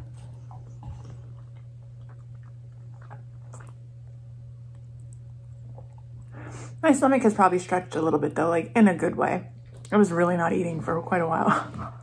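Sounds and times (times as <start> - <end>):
wet chewing and mouth clicks: 0.0 - 6.4
steady low hum: 0.0 - 12.0.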